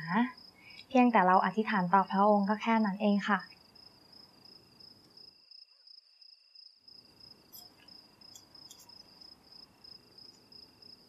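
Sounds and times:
background hiss: 0:00.0 - 0:01.1, 0:03.4 - 0:11.0
crickets trilling: 0:00.0 - 0:11.0.

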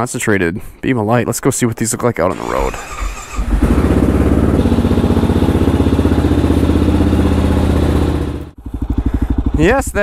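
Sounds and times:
motorcycle engine idling: 0:02.3 - 0:10.0.

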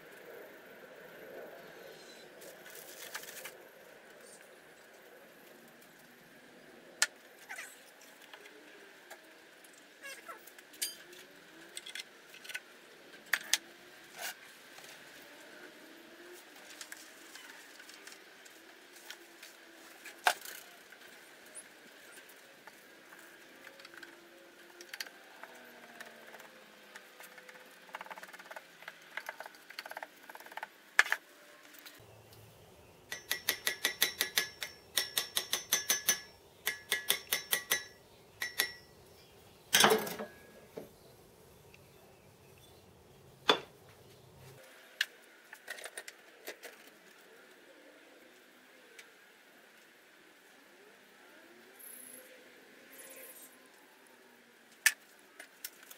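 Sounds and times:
metal tool tapping metal pin: 0:33.1 - 0:38.9.

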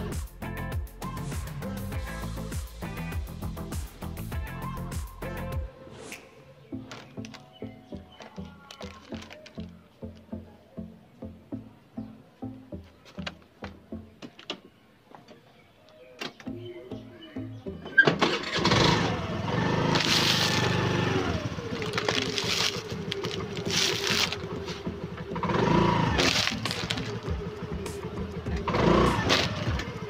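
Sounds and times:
background music with beat: 0:00.0 - 0:14.3, 0:21.2 - 0:30.0
car engine running loudly: 0:18.5 - 0:30.0.

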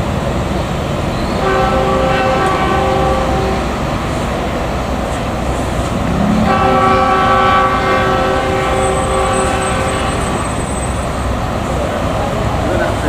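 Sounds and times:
train rumble: 0:00.0 - 0:13.0
locomotive horn chord: 0:01.4 - 0:04.0, 0:05.6 - 0:10.6.

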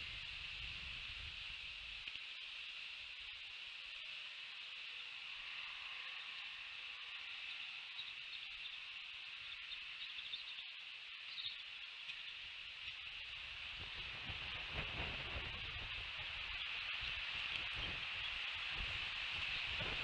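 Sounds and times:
high-pitched outdoor hiss: 0:00.0 - 0:20.0
faint bird chirps: 0:05.0 - 0:13.2.

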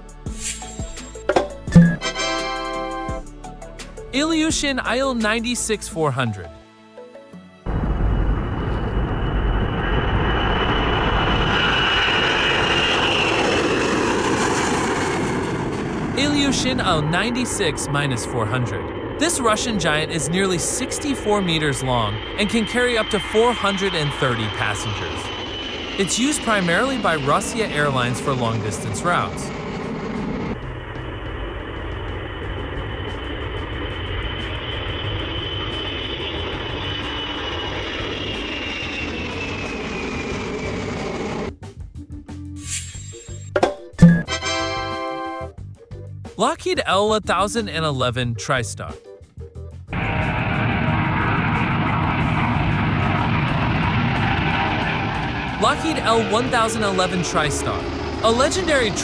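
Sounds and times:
jet engines roaring with whine: 0:07.7 - 0:41.6, 0:49.9 - 0:59.0.

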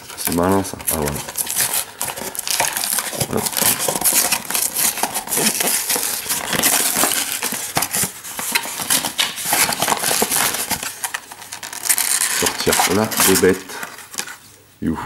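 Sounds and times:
packaging clicks and clatters: 0:00.0 - 0:14.4
packaging rustling: 0:00.0 - 0:14.6.

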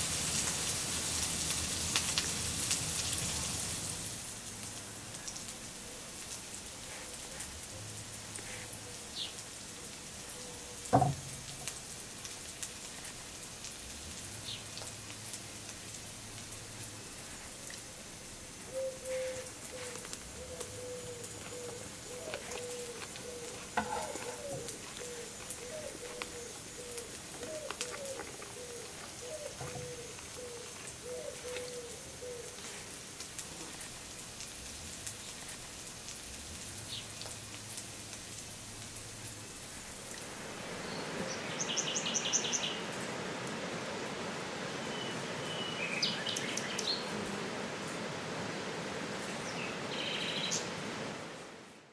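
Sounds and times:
steady rushing hiss: 0:00.0 - 0:51.9
birds chirping: 0:18.7 - 0:32.6
small ticks and clicks: 0:19.9 - 0:23.8, 0:24.6 - 0:31.7.

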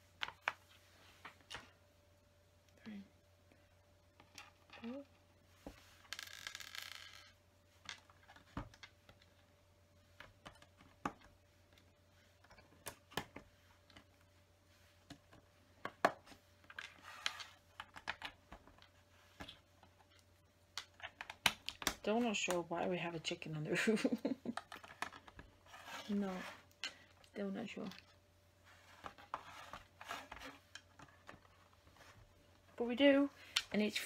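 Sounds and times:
rustling: 0:24.3 - 0:34.0.

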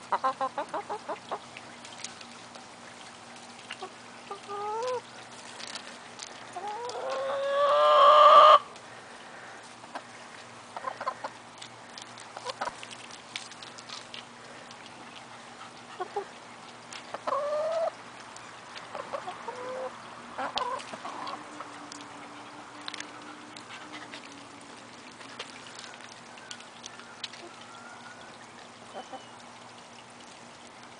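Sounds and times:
chickens clucking: 0:00.0 - 0:01.5, 0:03.8 - 0:05.0, 0:06.5 - 0:08.7, 0:10.7 - 0:11.4, 0:12.4 - 0:12.8, 0:15.6 - 0:16.4, 0:17.0 - 0:18.0, 0:18.9 - 0:24.3
faint steady hum: 0:00.0 - 0:30.9
chicken squawking: 0:06.6 - 0:08.7.

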